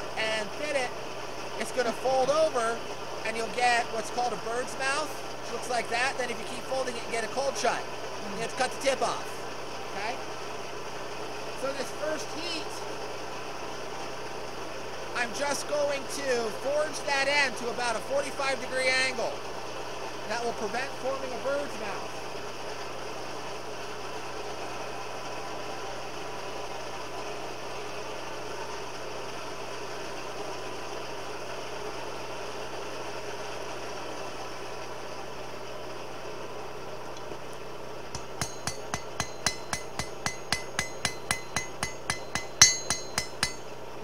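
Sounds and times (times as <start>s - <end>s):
forge blower running: 19.2s - 44.0s
hammer blows on anvil: 38.2s - 43.8s.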